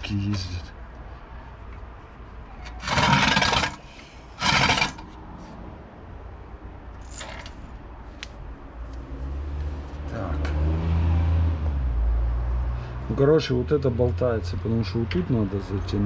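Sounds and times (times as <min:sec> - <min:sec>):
metal clattering and rattling: 0:02.6 - 0:05.1, 0:07.0 - 0:07.7.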